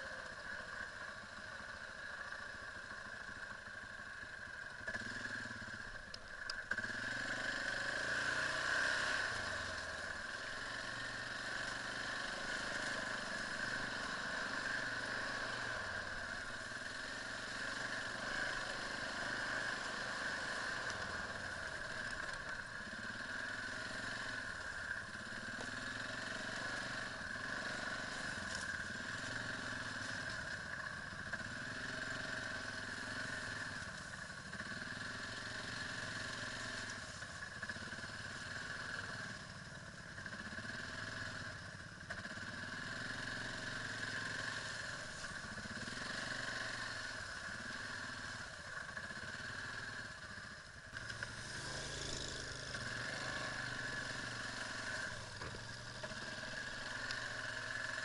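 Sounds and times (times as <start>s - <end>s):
quad bike engine revving: 0.0s - 58.0s.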